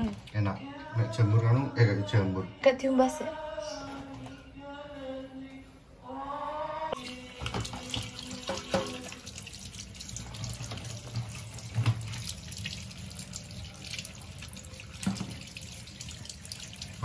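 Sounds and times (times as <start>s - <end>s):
tap water running into sink: 7.0s - 17.0s
kitchenware clinking: 7.1s - 9.2s.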